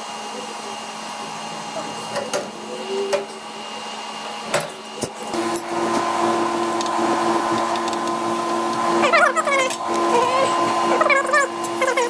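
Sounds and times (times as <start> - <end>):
small electric motor running: 5.2 - 12.0.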